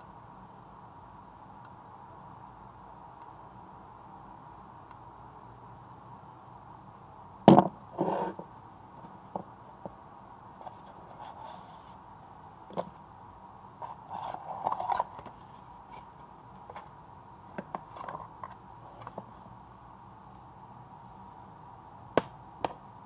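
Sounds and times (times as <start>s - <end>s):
paper rustling and scraping: 8.0s - 8.4s, 10.6s - 12.0s, 13.8s - 16.9s, 17.7s - 19.2s.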